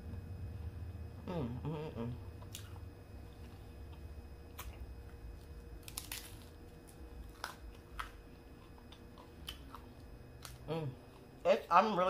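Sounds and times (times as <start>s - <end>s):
faint steady hum: 0.0s - 12.0s
person chewing food: 2.3s - 11.4s.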